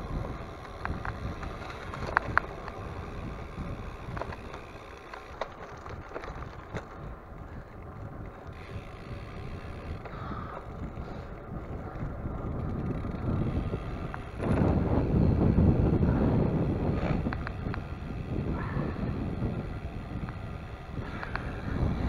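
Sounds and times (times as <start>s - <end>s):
sharp ticks: 0.0s - 6.9s, 7.8s - 22.0s
wind rushing over microphone: 0.0s - 22.0s.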